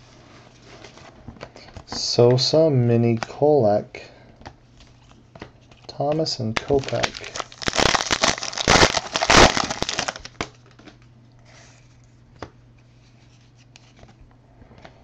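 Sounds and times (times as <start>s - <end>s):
foil pack tearing and crinkling: 6.5s - 11.0s.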